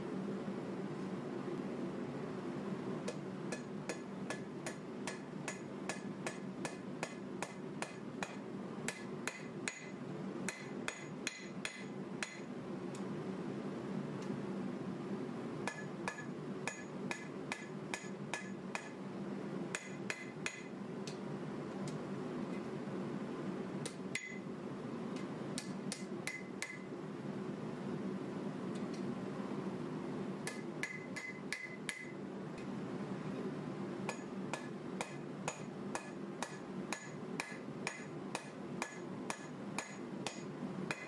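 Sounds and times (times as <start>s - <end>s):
steady low hum: 0.0s - 41.0s
hammer striking metal on anvil: 3.1s - 12.5s, 15.6s - 19.0s, 19.7s - 20.7s, 23.9s - 24.4s, 25.6s - 26.9s, 30.4s - 32.2s, 34.1s - 41.0s.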